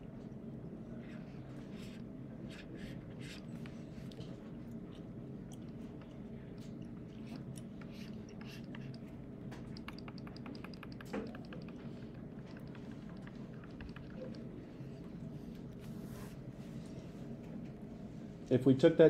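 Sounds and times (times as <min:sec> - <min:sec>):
steady low hum: 0:00.0 - 0:19.0
stylus tapping and scratching screen: 0:07.2 - 0:15.0.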